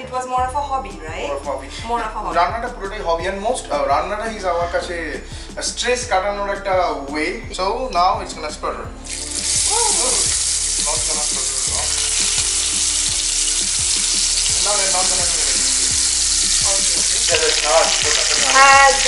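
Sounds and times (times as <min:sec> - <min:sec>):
fish sizzling in hot oil: 0:09.0 - 0:19.0.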